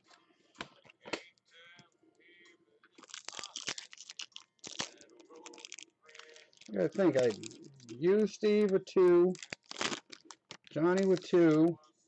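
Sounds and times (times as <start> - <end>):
foil tearing and crinkling: 3.0 - 11.6.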